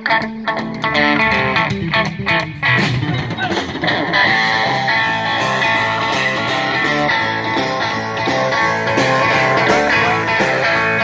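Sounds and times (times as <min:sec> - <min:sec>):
bass guitar: 0:00.0 - 0:11.0
drums: 0:00.0 - 0:11.0
electric guitar riff: 0:00.0 - 0:11.0.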